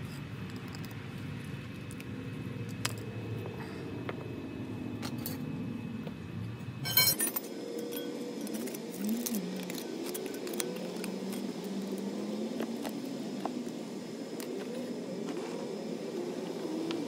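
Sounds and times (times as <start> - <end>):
metal tools clattering on stone: 6.8 - 8.6.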